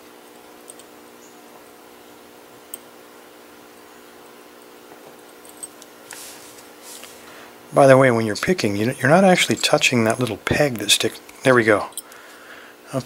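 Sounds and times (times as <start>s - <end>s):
steady hum: 0.0s - 13.0s.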